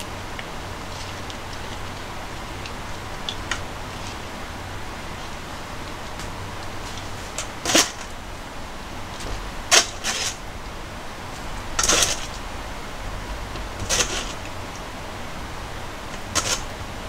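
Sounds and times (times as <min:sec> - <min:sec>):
chicken pieces handling scuffle: 0:13.8 - 0:14.4.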